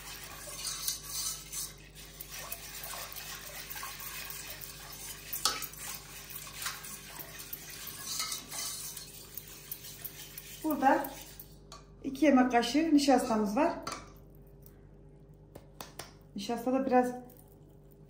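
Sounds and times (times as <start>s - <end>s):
liquid swishing and sloshing: 0.0s - 11.7s.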